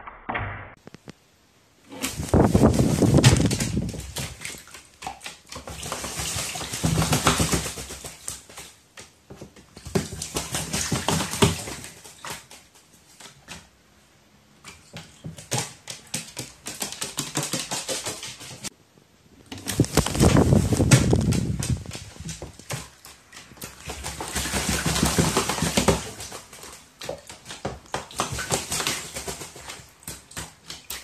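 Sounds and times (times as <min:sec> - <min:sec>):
bird splashing in water: 0:01.9 - 0:13.7, 0:19.5 - 0:31.0
wing fluttering: 0:19.6 - 0:22.4.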